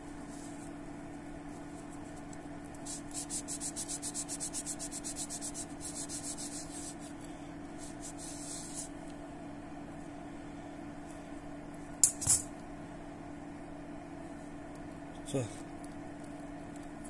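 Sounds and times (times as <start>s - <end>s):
steady low hum: 0.0s - 17.0s
paper towel rubbing metal: 2.8s - 7.2s, 7.8s - 8.9s.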